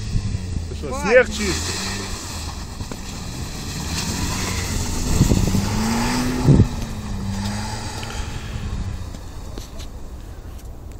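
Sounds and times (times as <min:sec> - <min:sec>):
car engine running: 0:00.0 - 0:10.4
low thumps: 0:02.5 - 0:09.2.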